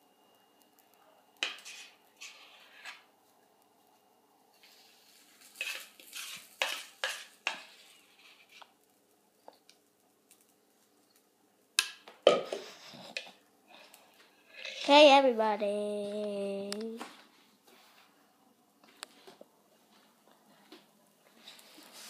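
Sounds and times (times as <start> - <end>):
utensil scraping mixing bowl: 1.4 - 3.1, 5.5 - 8.7, 14.4 - 15.0.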